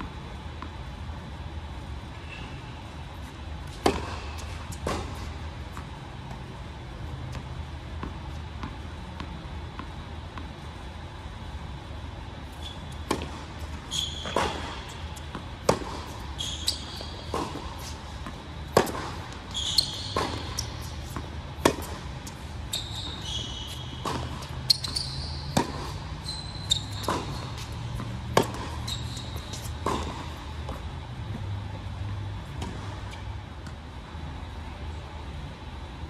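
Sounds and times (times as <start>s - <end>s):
sneaker squeaks: 2.2s - 6.6s, 12.5s - 31.5s
tennis ball bouncing: 3.1s - 10.7s, 12.9s - 33.8s
tennis ball struck by rackets: 3.7s - 6.4s, 13.0s - 13.5s, 14.2s - 16.2s, 16.9s - 22.2s, 24.0s - 24.6s, 25.5s - 26.0s, 26.9s - 28.8s, 29.5s - 30.8s.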